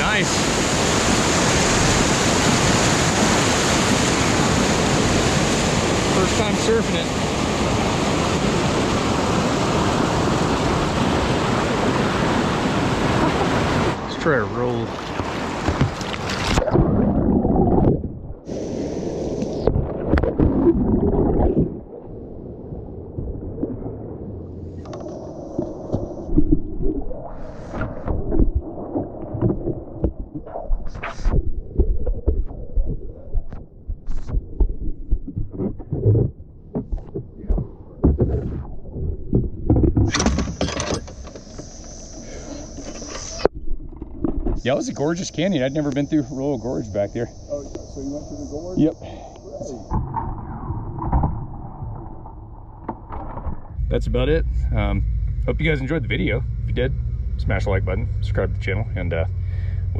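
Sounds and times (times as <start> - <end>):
whitewater rushing: 0.0 - 16.6
underwater gurgling and rumbling: 0.0 - 59.9
knocks of kayak and paddle: 14.9 - 16.7
steady hiss: 18.5 - 19.7, 40.1 - 43.5, 44.6 - 50.0.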